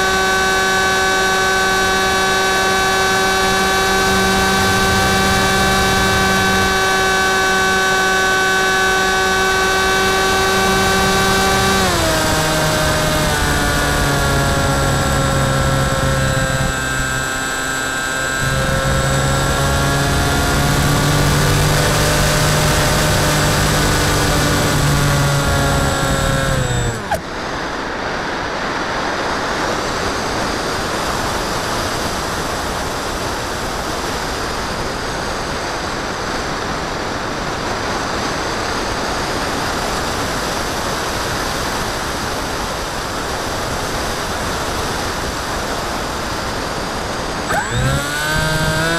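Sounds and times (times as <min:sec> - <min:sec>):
electric motor propeller buzzing: 0:00.0 - 0:27.4, 0:47.3 - 0:48.9.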